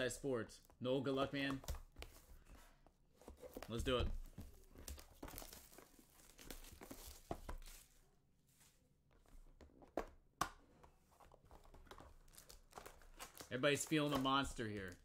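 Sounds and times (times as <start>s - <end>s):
plastic wrap tearing and crinkling: 12.3s - 14.1s.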